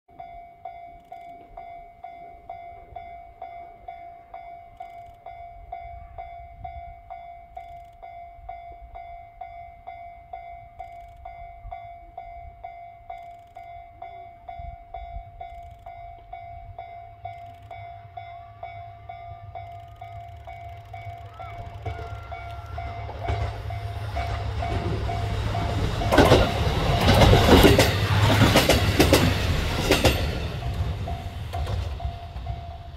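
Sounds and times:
level crossing alarm ringing: 0.1s - 32.9s
diesel railcar engine: 13.0s - 32.9s.

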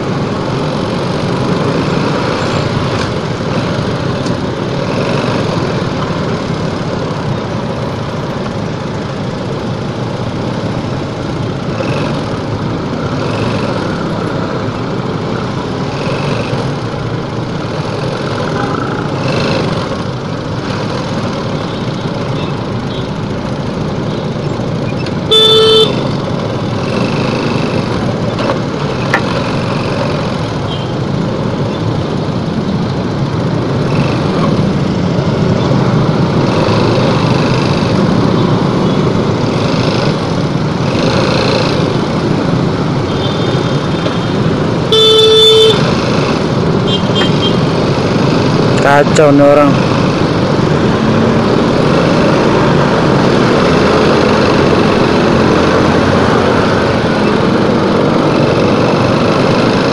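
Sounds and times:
dense traffic: 0.0s - 59.9s
motorcycle engine at low speed: 0.0s - 59.9s
vehicle horn blasts: 25.3s - 26.0s, 44.9s - 45.9s, 46.9s - 47.6s.

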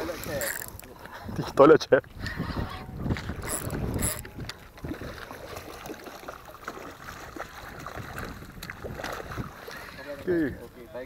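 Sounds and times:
fish splashing at surface: 4.8s - 10.0s.

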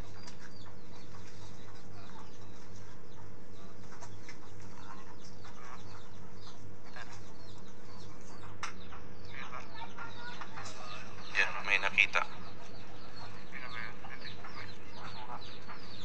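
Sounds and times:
pulsing low hum: 0.0s - 16.0s.

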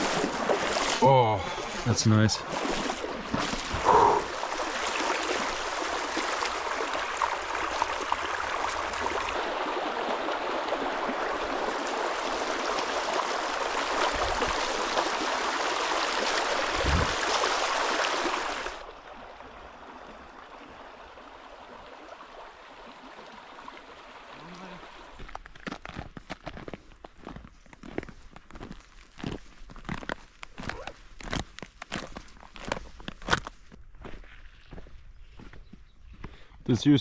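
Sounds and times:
wading through stream water: 0.0s - 34.8s.

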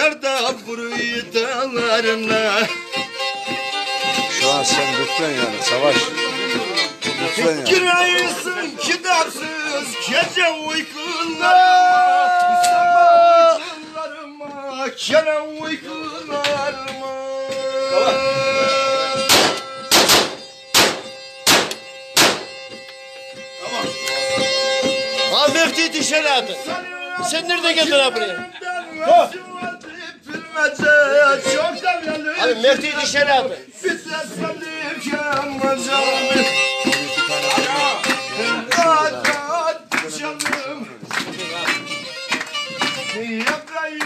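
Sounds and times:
plucked string instrument: 0.0s - 44.0s
bowed string melody: 1.4s - 11.2s
handgun shots: 19.3s - 22.5s.

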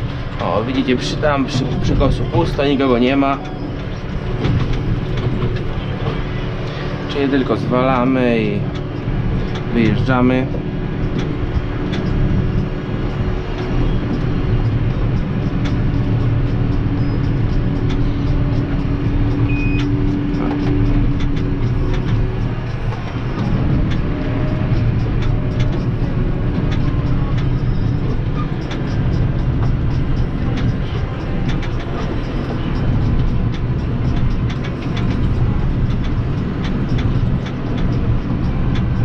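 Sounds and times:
tractor engine rumbling: 0.0s - 39.0s.

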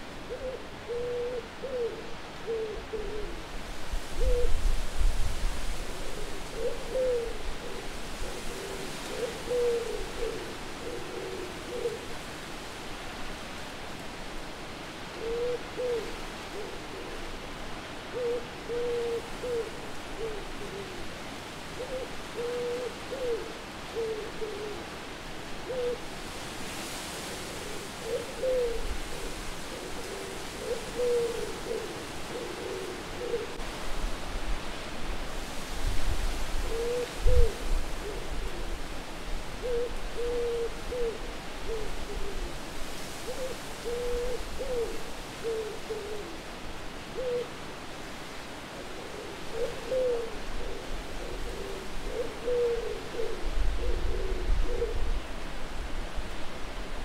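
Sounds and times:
steady wind: 0.0s - 57.0s
owl hooting: 0.3s - 3.4s, 6.2s - 12.1s, 15.2s - 17.2s, 18.1s - 21.0s, 25.6s - 26.0s, 27.6s - 33.6s, 39.6s - 42.6s, 43.2s - 46.4s, 47.2s - 47.5s, 48.9s - 55.1s.

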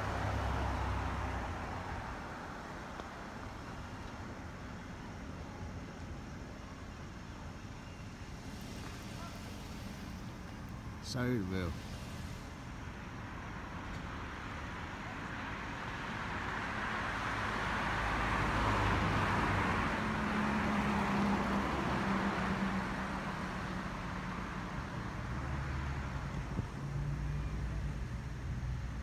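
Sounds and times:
vehicle passing by: 0.0s - 2.6s, 15.5s - 29.0s
low engine hum: 0.0s - 29.0s.

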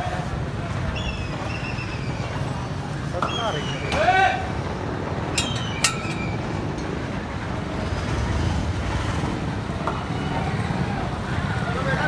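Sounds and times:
passing vehicles rumbling: 0.0s - 12.0s.

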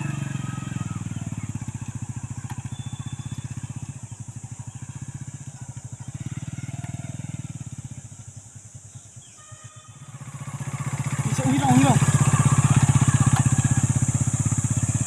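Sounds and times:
motorcycle engine chugging: 0.0s - 15.0s.

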